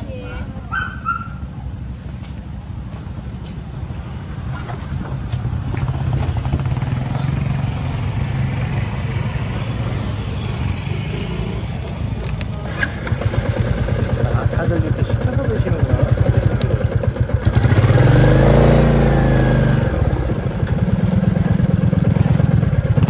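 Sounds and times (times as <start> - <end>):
motorcycle engine idling: 5.5 - 23.0.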